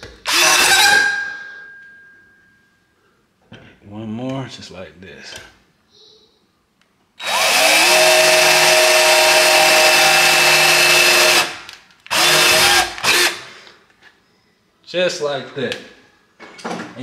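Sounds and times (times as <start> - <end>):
cordless drill boring: 0.3 - 1.1, 7.2 - 13.5.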